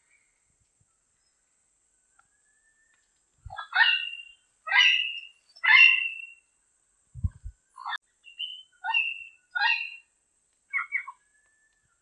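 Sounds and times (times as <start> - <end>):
parrot calling: 3.5 - 6.4, 7.8 - 10.0.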